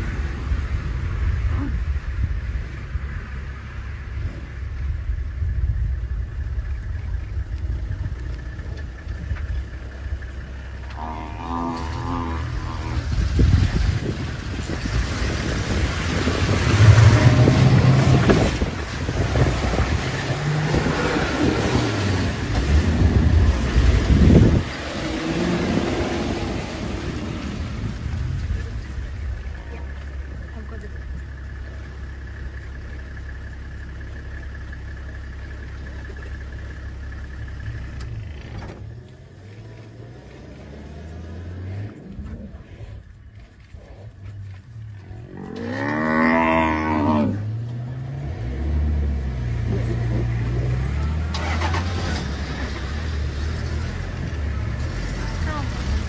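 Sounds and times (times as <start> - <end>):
wind buffeting microphone: 0.0 - 10.6, 12.4 - 30.6
vehicle engine humming: 0.0 - 56.0.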